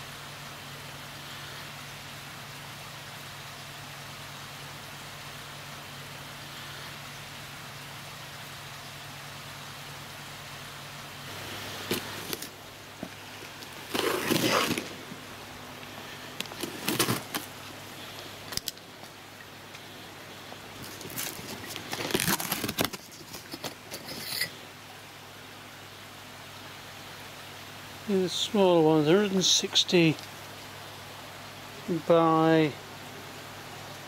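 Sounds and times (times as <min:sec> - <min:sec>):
steady hiss: 0:00.0 - 0:34.0
tape ripping from cardboard box: 0:11.8 - 0:12.6, 0:13.5 - 0:15.2, 0:16.5 - 0:17.5, 0:20.8 - 0:24.3.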